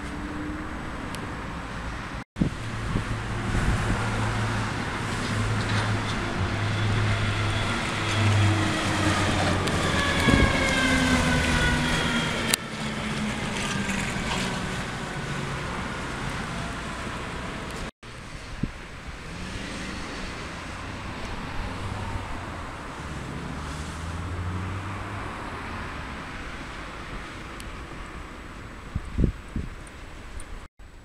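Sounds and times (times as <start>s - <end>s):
fire engine diesel engine: 0.0s - 27.4s.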